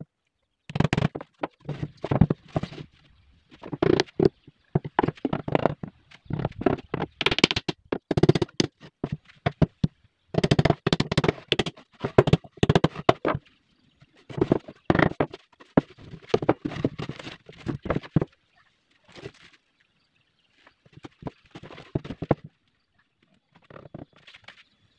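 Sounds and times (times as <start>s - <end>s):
wooden panels knocking: 10.4s - 13.4s.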